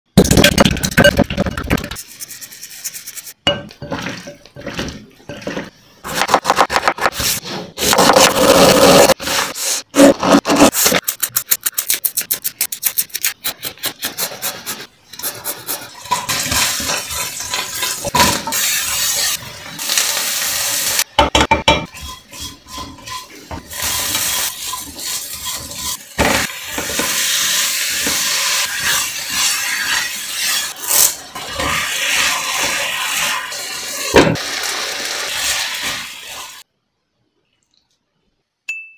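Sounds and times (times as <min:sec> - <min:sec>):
food sizzling in pan: 0:16.0 - 0:21.2, 0:22.0 - 0:36.7.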